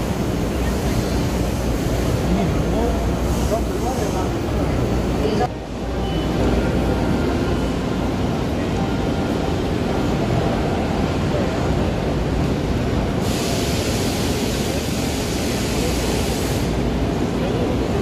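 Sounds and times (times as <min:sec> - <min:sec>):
din of machinery hall: 0:00.0 - 0:18.0
hiss: 0:13.2 - 0:16.8.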